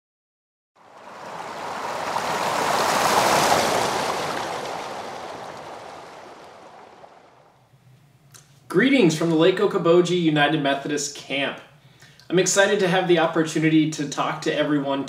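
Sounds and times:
wave-like rushing noise: 0.8 - 7.6.

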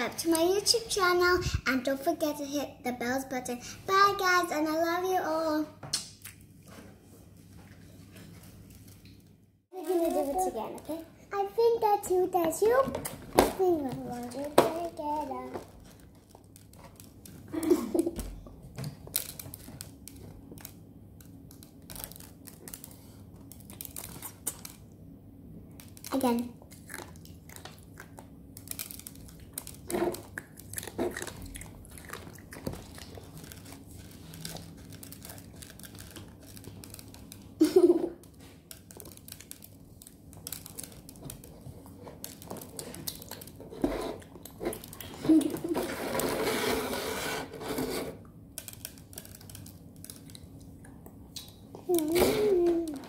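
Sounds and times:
clicks and crinkly rustling: 8.0 - 24.9, 25.8 - 46.7, 47.6 - 53.0
child murmuring: 51.9 - 53.0.

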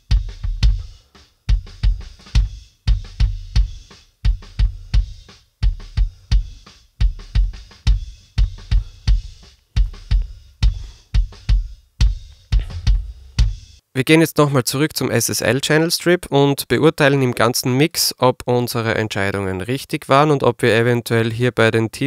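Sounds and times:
kick drum hits: 7.1 - 13.8.

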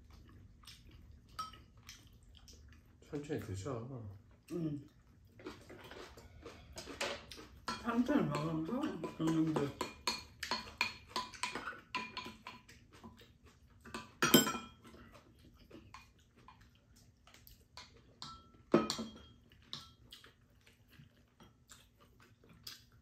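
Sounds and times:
utensils clinking on ceramic bowls: 6.8 - 12.6, 14.0 - 14.8.

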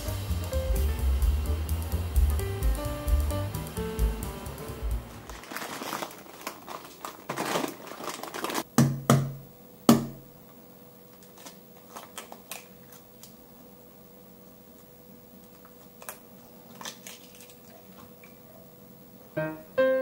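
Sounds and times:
faint steady hum: 0.0 - 20.0
rustling: 5.1 - 8.7.

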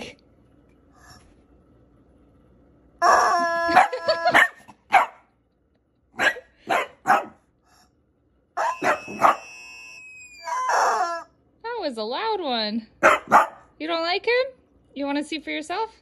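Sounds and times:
dog barking: 3.8 - 5.3, 6.2 - 7.4, 8.6 - 9.5, 13.0 - 13.7.

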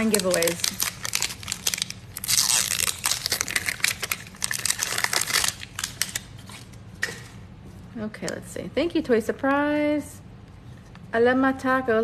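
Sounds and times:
plastic wrap crinkling: 0.0 - 7.2.

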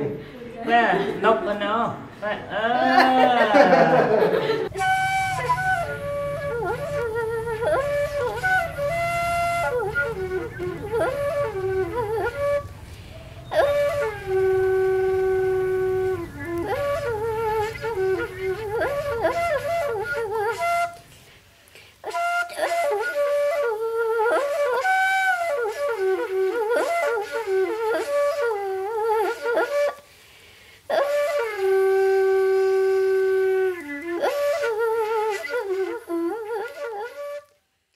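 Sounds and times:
solo wind instrument melody: 4.0 - 21.3, 22.0 - 30.2, 30.8 - 37.7.

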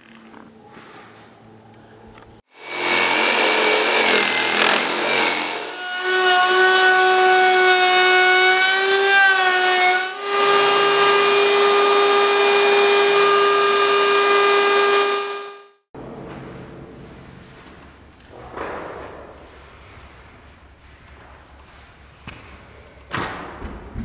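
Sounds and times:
power saw cutting wood: 2.5 - 15.8
router whining at high speed: 2.5 - 15.8.

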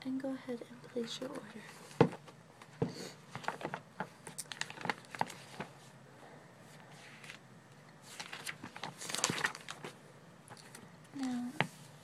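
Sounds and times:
paper pages turning: 1.2 - 5.9, 6.8 - 7.4, 8.0 - 11.6.

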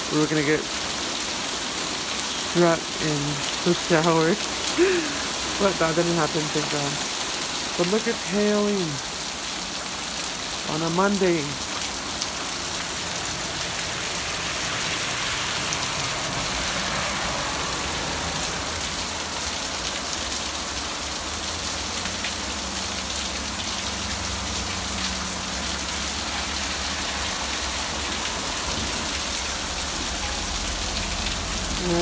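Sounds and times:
rain and hail pelting down: 0.0 - 32.0.

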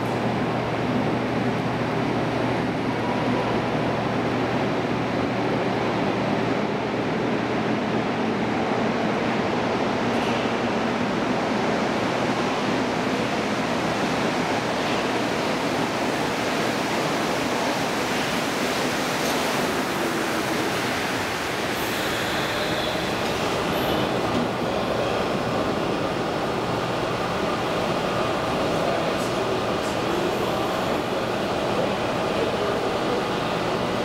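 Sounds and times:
metro train running noise: 0.0 - 34.0.

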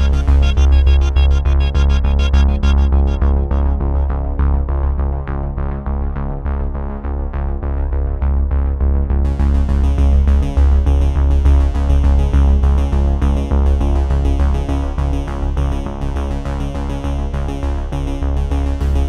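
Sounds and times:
high percussion: 0.0 - 4.2
synthesizer music: 0.0 - 4.7.

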